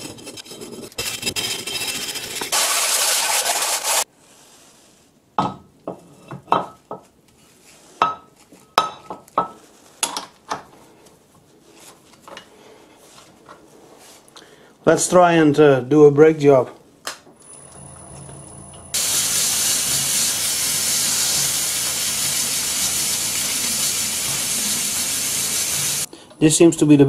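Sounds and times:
wire brush scrubbing metal: 0:01.0 - 0:04.1, 0:19.0 - 0:26.1.

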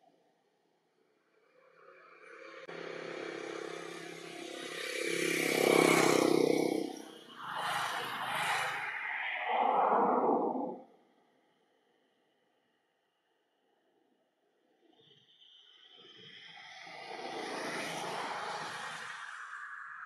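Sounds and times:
rush of noise: 0:02.8 - 0:10.9.

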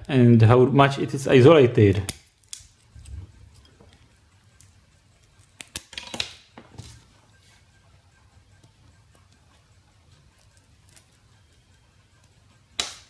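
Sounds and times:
metal tool clicking and scraping: 0:02.0 - 0:06.4, 0:08.6 - 0:11.6.

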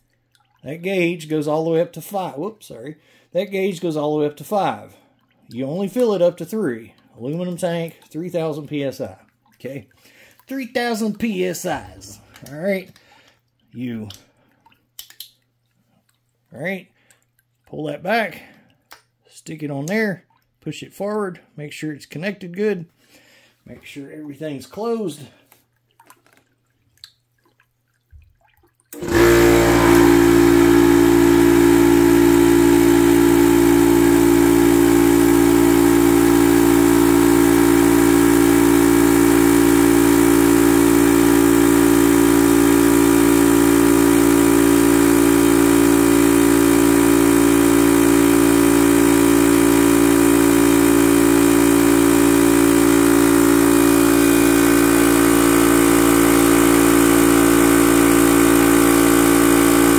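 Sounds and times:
air compressor running: 0:29.0 - 0:59.9.

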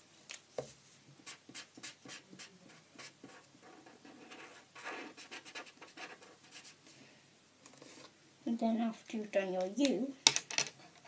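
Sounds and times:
felt-tip pen scratching on paper: 0:01.2 - 0:06.8.

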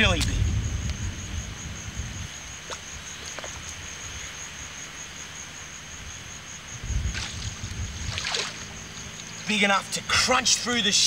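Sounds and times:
low rumble: 0:00.0 - 0:02.6, 0:06.7 - 0:10.4
high-pitched insect trill: 0:00.0 - 0:11.0.

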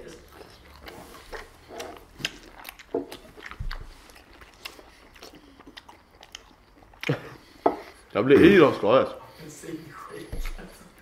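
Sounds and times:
orange peel bitten and chewed: 0:00.0 - 0:08.1.

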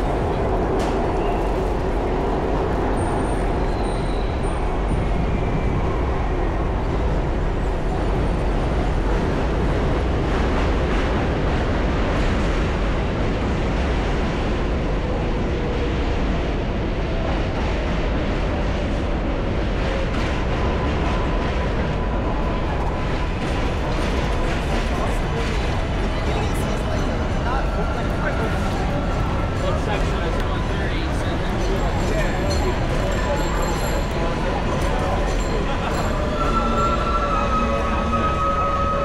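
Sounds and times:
traffic rumble on busy road: 0:00.0 - 0:39.0.

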